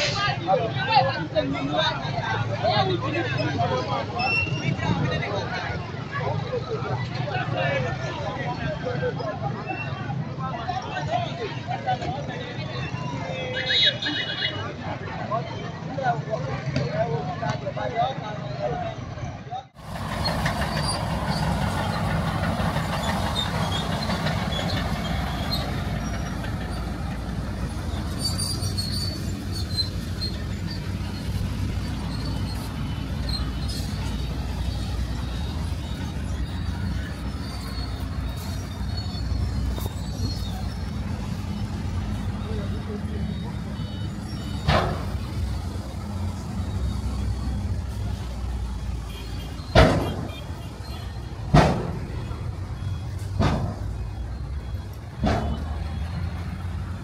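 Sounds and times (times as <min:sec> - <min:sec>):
road traffic: 0:00.0 - 0:57.0
heavy machinery rumble: 0:19.8 - 0:57.0
faint high squeaks: 0:27.9 - 0:45.4.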